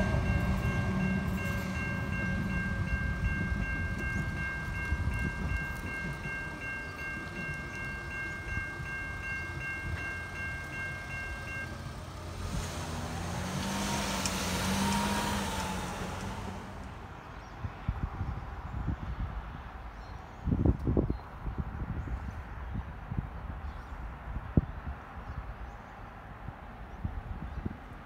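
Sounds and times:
level-crossing bell ringing: 0.0 - 12.3
low train rumble: 0.0 - 28.0.

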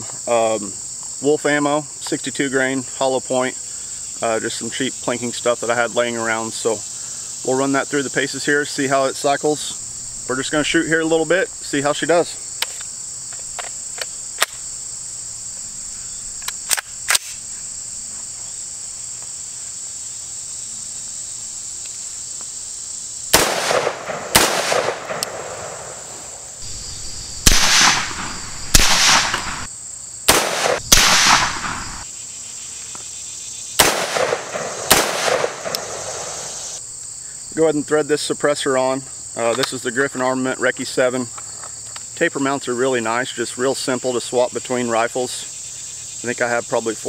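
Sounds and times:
insects buzzing: 0.0 - 47.0
gunshots echoing: 23.3 - 29.7, 30.3 - 32.0, 33.8 - 36.6
sharp clicks: 23.4 - 26.4, 33.8 - 36.2.

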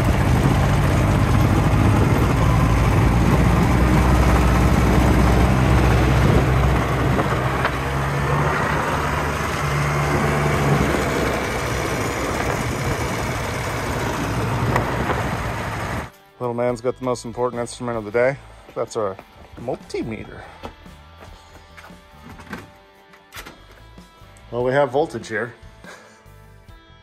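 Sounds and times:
atv engine running: 0.0 - 16.1.

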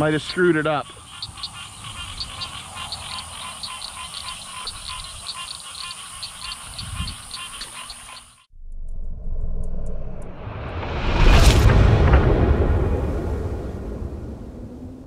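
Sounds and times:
frogs calling: 0.0 - 8.5
high insect drone: 0.5 - 8.5.

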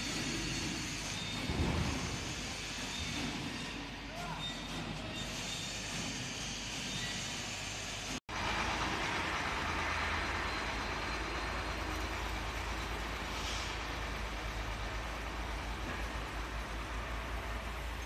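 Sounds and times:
hiss: 0.0 - 3.9, 13.2 - 14.4.

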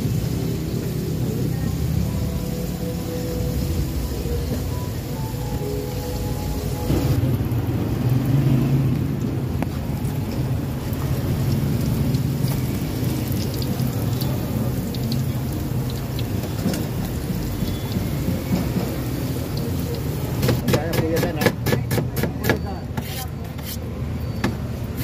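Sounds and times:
oil sizzling with pops: 5.5 - 21.5.

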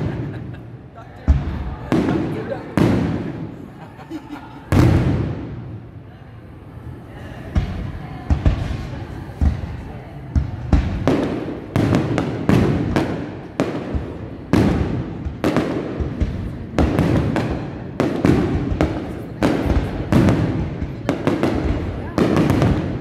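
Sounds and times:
firework shells booming: 1.3 - 3.7, 4.7 - 5.8, 10.3 - 23.0.

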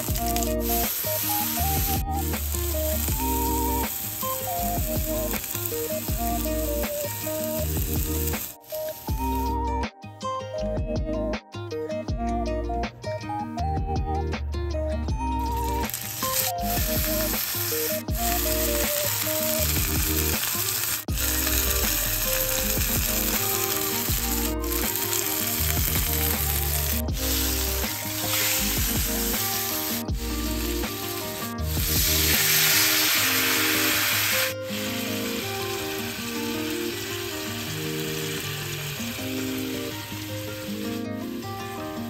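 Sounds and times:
patty sizzling in frying pan: 0.0 - 9.5, 15.6 - 42.0
background music: 0.0 - 42.0
wine hitting hot pan: 15.9 - 39.7.

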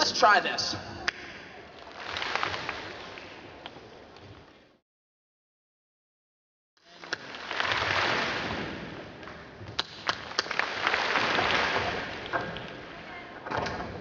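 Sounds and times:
audience clapping: 1.1 - 3.8, 6.9 - 13.0
sharp cracks: 6.9 - 13.1.

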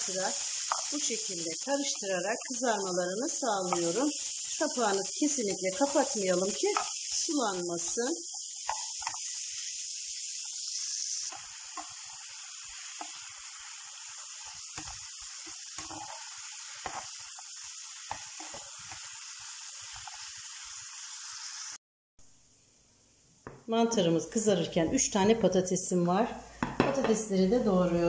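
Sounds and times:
mushrooms sizzling in frying pan: 0.0 - 21.8, 23.8 - 28.0
spatula knocking and scraping pan: 0.6 - 1.0, 3.6 - 4.0, 5.5 - 7.0, 8.3 - 9.3, 11.3 - 13.3, 14.4 - 17.2, 18.0 - 19.1, 26.6 - 27.2.

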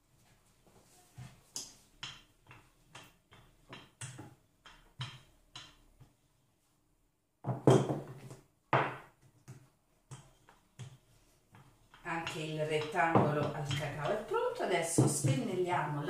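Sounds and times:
rolling pin knocking on board: 7.4 - 9.1.

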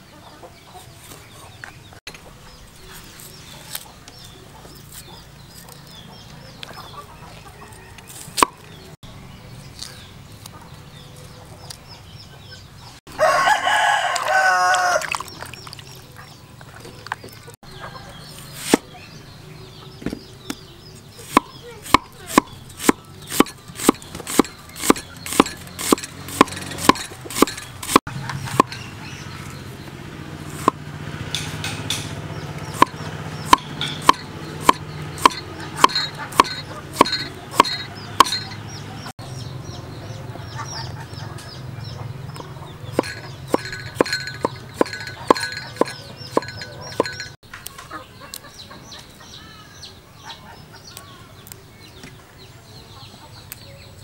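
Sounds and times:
chickens clucking: 0.0 - 9.0, 9.8 - 29.8, 31.4 - 54.0
cleaver knocking on chopping block: 32.8 - 38.5.

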